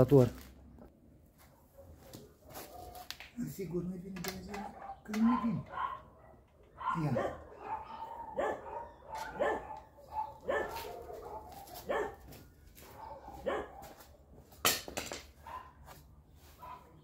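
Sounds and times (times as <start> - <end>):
dog barking: 1.5 - 3.1, 4.4 - 14.2, 15.4 - 15.8, 16.6 - 17.0.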